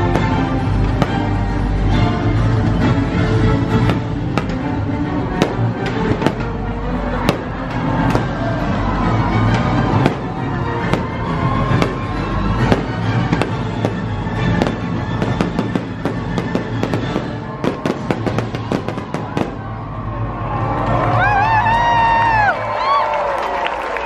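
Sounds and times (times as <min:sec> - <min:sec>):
fireworks bangs and crackles: 0:00.0 - 0:02.0, 0:03.6 - 0:19.9
music playing: 0:00.0 - 0:24.0.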